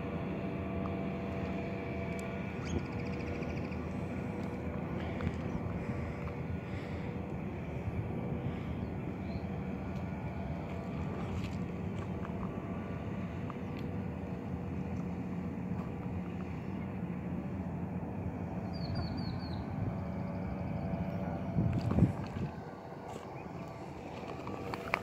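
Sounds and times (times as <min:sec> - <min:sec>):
low outdoor rumble: 0:00.0 - 0:25.0.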